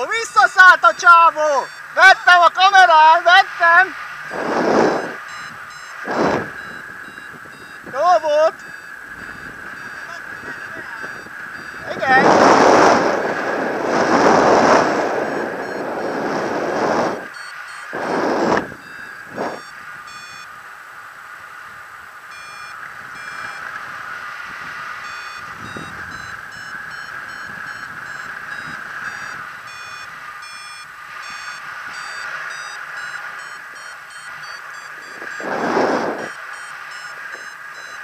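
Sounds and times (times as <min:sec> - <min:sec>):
variometer beeping: 0:00.0 - 0:38.0
loud rush of noise: 0:03.2 - 0:05.3, 0:06.0 - 0:06.6, 0:10.0 - 0:17.3, 0:17.9 - 0:19.6, 0:34.9 - 0:36.4
airflow hiss: 0:04.3 - 0:05.2, 0:06.0 - 0:06.6, 0:12.2 - 0:17.2, 0:17.9 - 0:19.6, 0:35.1 - 0:36.3.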